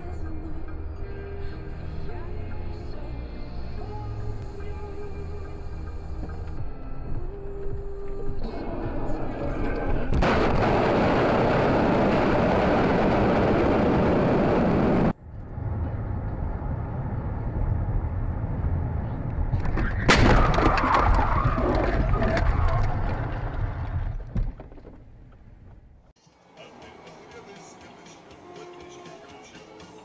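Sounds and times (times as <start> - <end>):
road noise inside car: 14.2 - 19.9
crash with rattling and scraping: 19.6 - 25.1
car crashing and scraping: 19.6 - 25.8.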